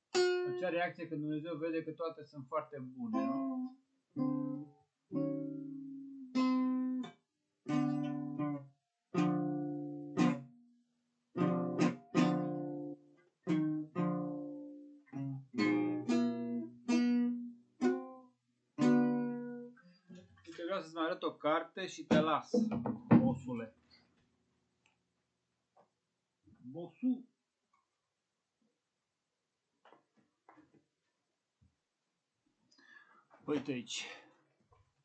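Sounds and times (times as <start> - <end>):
acoustic guitar chords: 3.0 - 7.1, 7.7 - 8.6, 11.4 - 18.2, 18.8 - 19.8.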